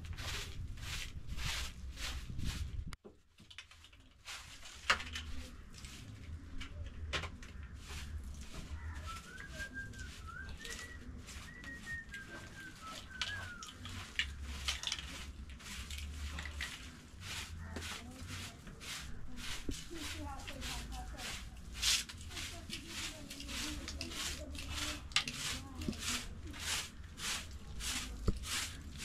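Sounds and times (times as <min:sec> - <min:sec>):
bird whistling call: 0:08.8 - 0:13.9.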